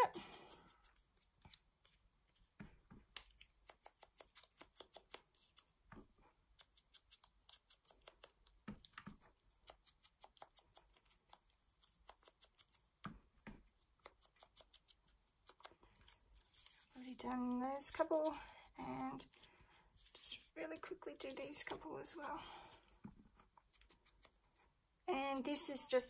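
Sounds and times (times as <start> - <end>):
paper pieces handled: 13.7 - 18.5.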